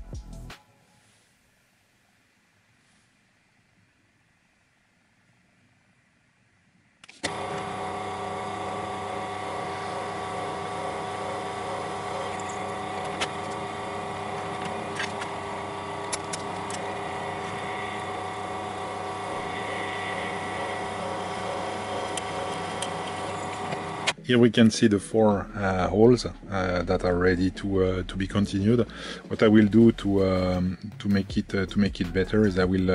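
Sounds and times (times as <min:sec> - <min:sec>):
drill press motor humming: 0:07.0 - 0:24.2.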